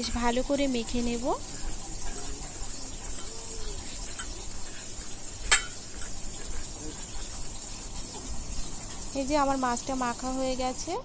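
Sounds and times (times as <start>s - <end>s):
sharp clink on steel bowl: 0.0s - 0.3s, 3.0s - 4.5s, 5.4s - 6.2s.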